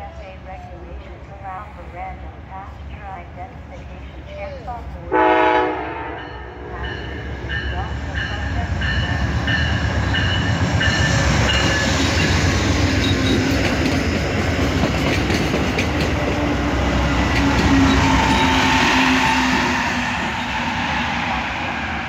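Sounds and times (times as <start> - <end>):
train passing rumble: 0.0 - 22.0
train horn: 5.1 - 7.3, 17.3 - 21.4
wheels clicking over rail joints: 13.0 - 16.6.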